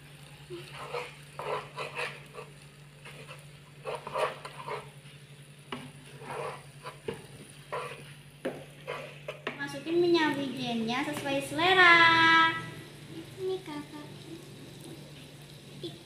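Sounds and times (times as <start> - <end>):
light frying sizzle: 0.0 - 16.0
spatula scraping frying pan: 0.5 - 10.0.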